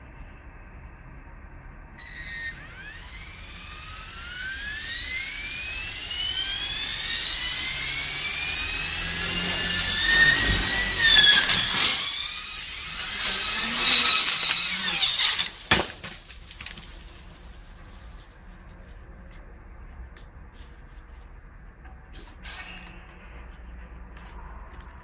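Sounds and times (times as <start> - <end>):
helicopter rotor whine: 2.0 - 15.6
sharp crack: 10.1 - 17.4.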